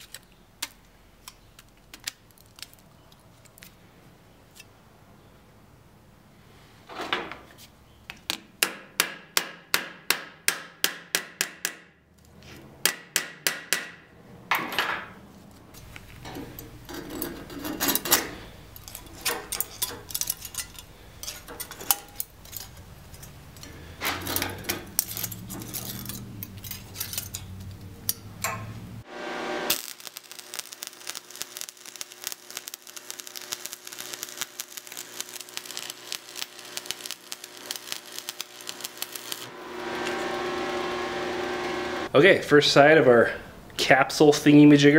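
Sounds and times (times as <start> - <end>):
welding arc crackling: 29.0 - 42.1.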